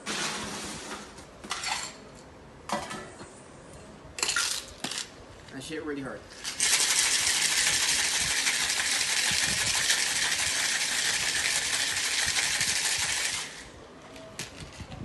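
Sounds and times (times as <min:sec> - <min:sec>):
ice rattling in cocktail shaker: 0:06.4 - 0:13.6.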